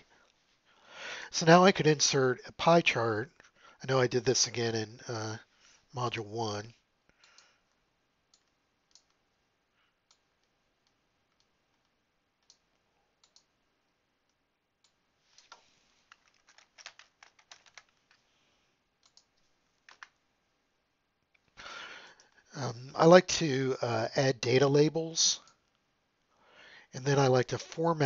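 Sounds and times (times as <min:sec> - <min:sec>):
faint keyboard typing: 0:07.1 - 0:20.3, 0:21.2 - 0:22.5
mouse clicks: 0:10.1 - 0:12.6, 0:13.2 - 0:13.5, 0:19.0 - 0:20.1.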